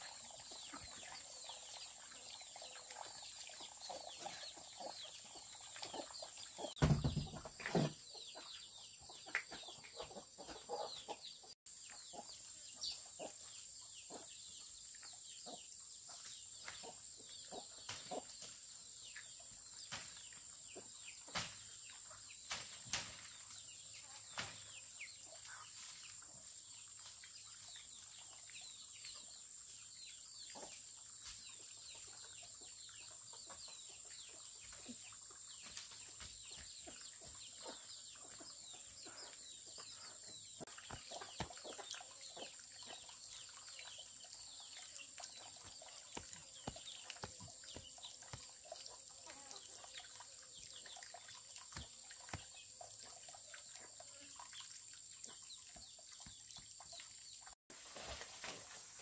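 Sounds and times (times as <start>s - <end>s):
chickens clucking: 7.4s - 12.3s, 14.1s - 14.3s, 16.7s - 18.4s, 30.5s - 30.8s, 36.1s - 50.2s.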